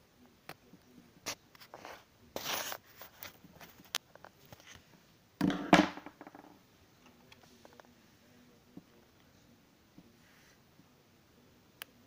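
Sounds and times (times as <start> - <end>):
scraping rustle: 1.3 - 3.9.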